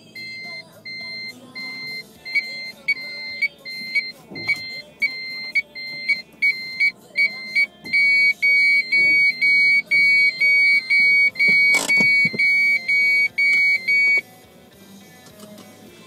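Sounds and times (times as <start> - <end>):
high-pitched electronic beeps: 0.0 - 14.2.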